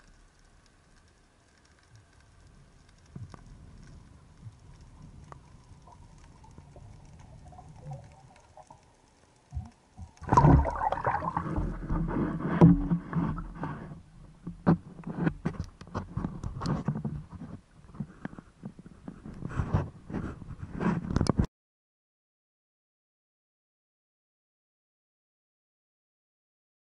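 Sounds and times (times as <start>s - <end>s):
water splashing and sloshing: 0.0s - 21.4s
muffled underwater hush: 9.6s - 15.5s.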